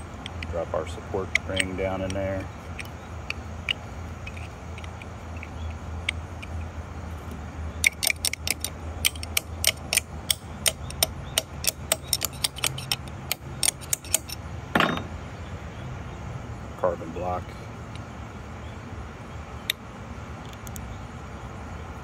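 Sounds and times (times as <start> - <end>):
metal parts clicking: 0.0 - 6.7, 7.8 - 15.1
steady low hum: 0.0 - 22.0.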